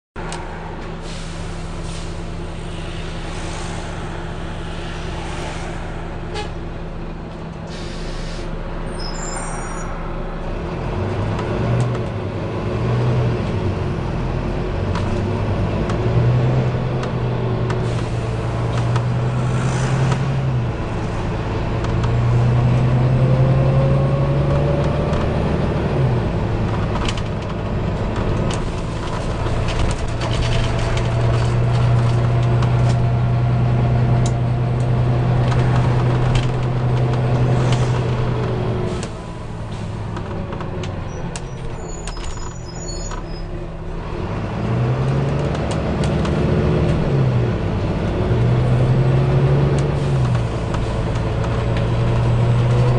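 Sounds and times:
bus diesel engine: 0.0s - 52.9s
compressed air hisses: 1.0s - 6.8s, 7.7s - 8.5s.

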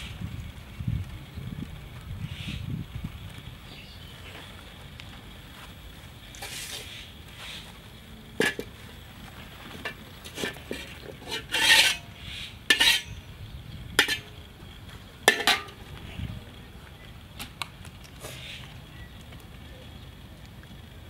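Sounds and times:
spatula scraping wok: 6.4s - 7.6s, 8.4s - 8.9s, 9.6s - 13.3s, 14.0s - 14.4s, 15.3s - 15.8s
metal spatula clanking on wok: 8.4s - 8.8s, 9.8s - 12.1s, 12.7s - 13.2s, 14.0s - 14.4s, 15.3s - 15.8s.

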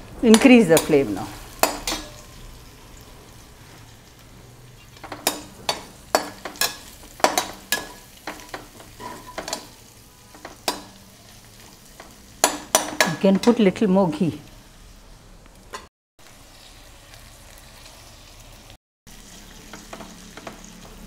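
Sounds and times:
onions sizzling in a pan: 0.0s - 21.0s
utensil scraping a pan: 3.6s - 10.8s.

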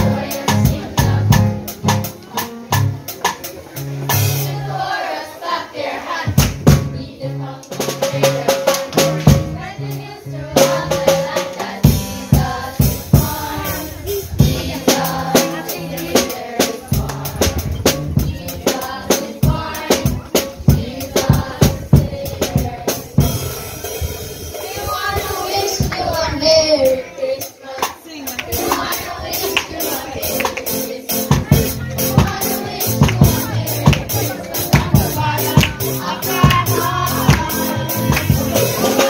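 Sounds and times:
drum kit beat: 0.0s - 4.9s, 6.3s - 39.0s
person singing melody: 29.8s - 39.0s.

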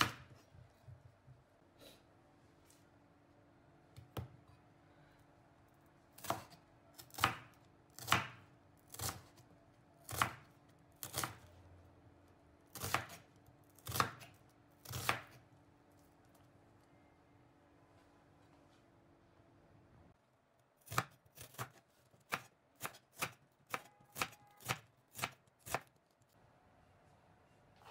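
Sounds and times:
knife slicing onion on wooden board: 0.0s - 0.4s, 6.1s - 9.4s, 10.0s - 11.5s, 12.7s - 15.4s, 20.8s - 25.9s.

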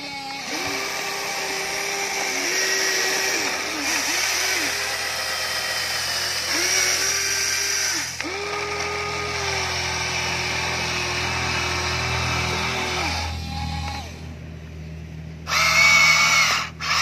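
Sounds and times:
toy excavator electric motors whirring: 0.0s - 14.4s, 15.4s - 17.0s.

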